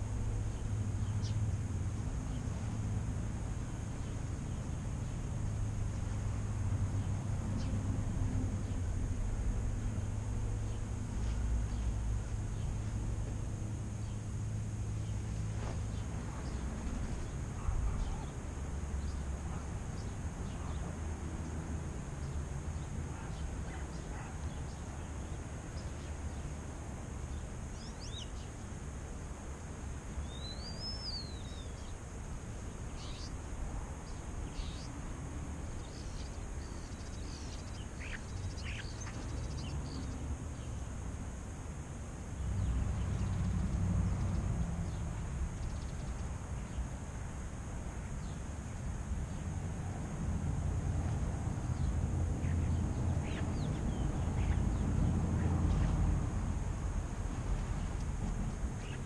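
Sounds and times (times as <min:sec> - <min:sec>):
low outdoor rumble: 0:00.0 - 0:59.0
starlings whistling and calling: 0:30.2 - 0:31.9, 0:33.0 - 0:33.3, 0:34.5 - 0:34.9, 0:35.8 - 0:40.2.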